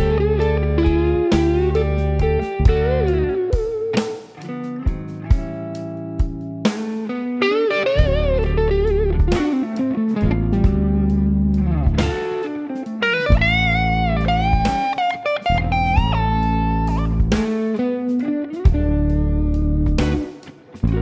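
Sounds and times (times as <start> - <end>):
low bass line: 0.0 - 3.5, 8.0 - 9.5, 10.2 - 12.2, 13.3 - 14.8, 15.5 - 17.5, 18.7 - 21.0
electric guitar bent notes: 6.8 - 19.4.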